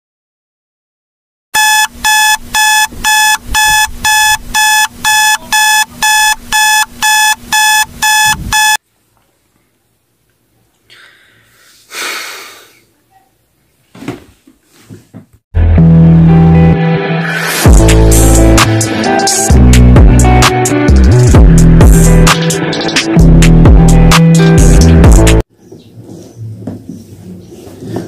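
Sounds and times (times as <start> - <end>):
electronic alarm beeping: 1.6 - 8.8.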